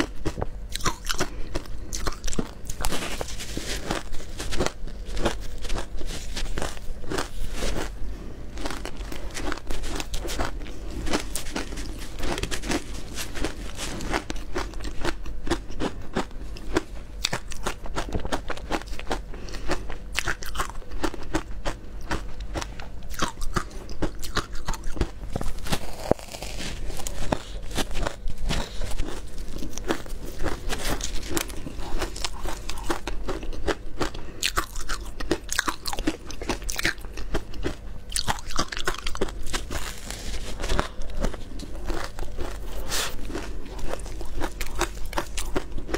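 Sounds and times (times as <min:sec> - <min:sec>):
crunching ice between teeth: 0:00.0 - 0:45.9.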